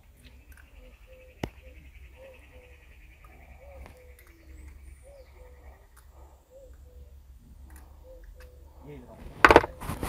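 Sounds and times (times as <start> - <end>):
bird two-part call: 0.3 - 7.2.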